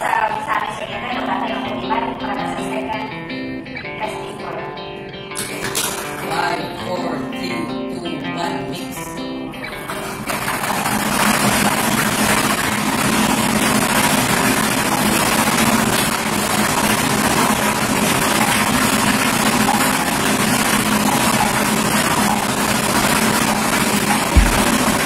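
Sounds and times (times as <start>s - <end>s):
blower rushing with low hum: 11.0s - 25.0s.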